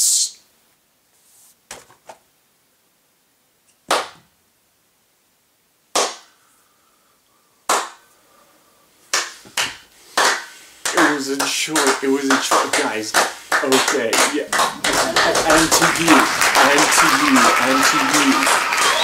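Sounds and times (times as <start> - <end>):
hand claps: 3.9 - 4.2, 5.9 - 6.3, 7.7 - 8.0, 9.1 - 19.0.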